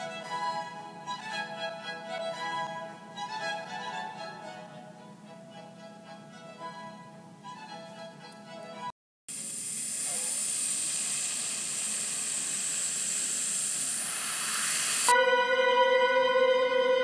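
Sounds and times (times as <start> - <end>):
background music: 0.0 - 8.9, 15.2 - 17.0
music with long held notes: 0.0 - 8.9, 15.1 - 17.0
rushing hiss sound effect: 9.3 - 15.2.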